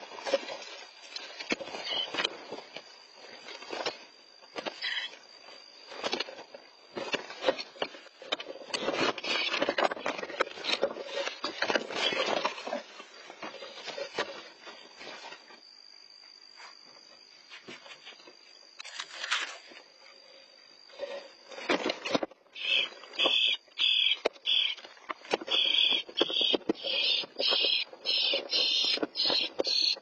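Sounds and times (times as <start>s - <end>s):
claws scraping and knocking on wood: 7.0s - 14.4s, 21.6s - 30.0s.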